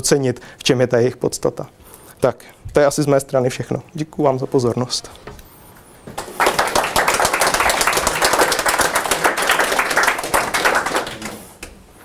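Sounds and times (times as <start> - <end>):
audience applauding: 6.1 - 11.8.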